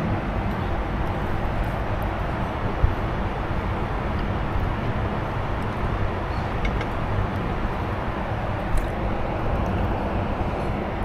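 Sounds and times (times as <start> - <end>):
airliner cabin rumble: 0.0 - 11.0.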